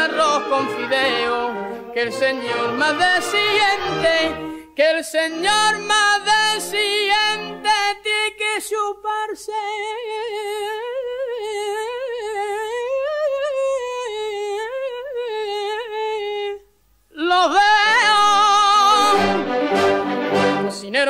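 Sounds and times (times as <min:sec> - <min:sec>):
brass band: 0:00.0 - 0:04.6, 0:18.9 - 0:21.0
man singing a long note: 0:18.0 - 0:19.6.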